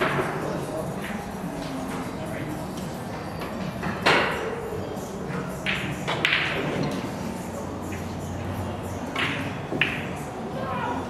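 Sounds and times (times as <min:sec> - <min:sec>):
low murmur of voices: 0:00.0 - 0:11.0
cue tips striking balls: 0:05.5 - 0:07.2, 0:09.0 - 0:10.2
pool balls clacking: 0:05.5 - 0:07.2, 0:09.0 - 0:10.2.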